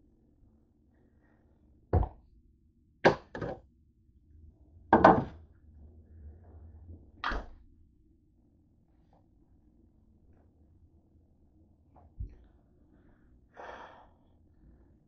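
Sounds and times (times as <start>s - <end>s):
objects knocking and clunking: 2.0s - 2.2s, 3.1s - 3.6s, 4.9s - 5.4s.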